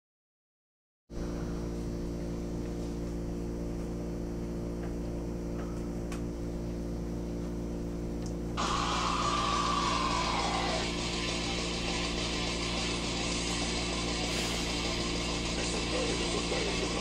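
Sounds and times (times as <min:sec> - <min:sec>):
steady electrical hum: 0:01.1 - 0:17.0
loud distorted music: 0:08.6 - 0:17.0.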